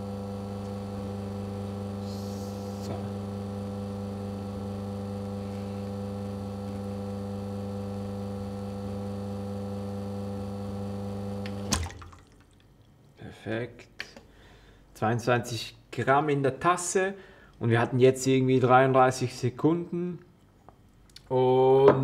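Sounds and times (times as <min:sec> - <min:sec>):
espresso machine pump humming: 0:00.0 - 0:11.7.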